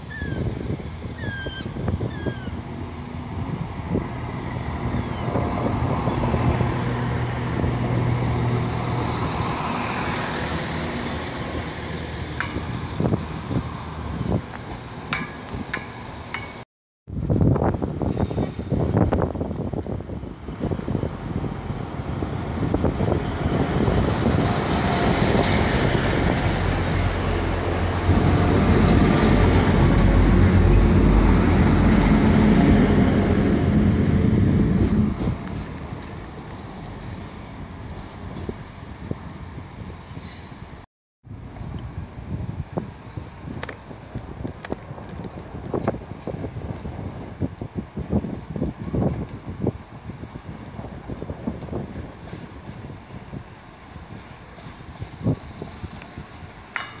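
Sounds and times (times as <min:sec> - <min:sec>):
diesel train passing: 0:00.0 - 0:16.6, 0:17.2 - 0:40.8
train wheels rumbling: 0:20.8 - 0:38.6.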